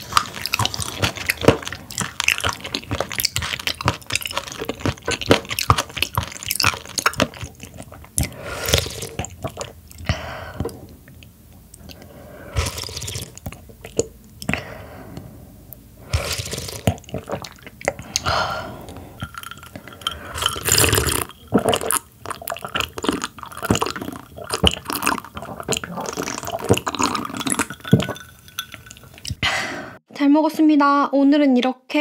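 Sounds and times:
slurping broth: 0:00.0 - 0:11.1, 0:11.8 - 0:29.4
swallowing: 0:00.0 - 0:29.5
sipping and gulping tea: 0:00.0 - 0:30.0
glass mug knocking: 0:27.6 - 0:29.0.

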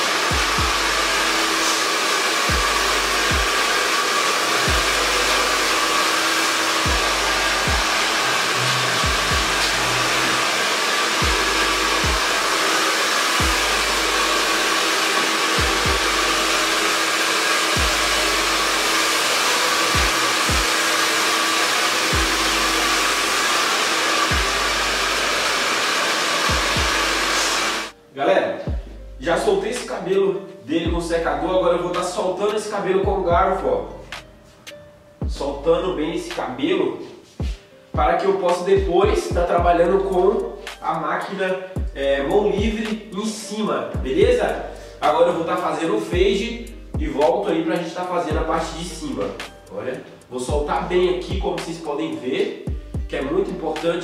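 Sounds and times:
hair dryer running: 0:00.0 - 0:28.0, 0:48.3 - 0:49.8.

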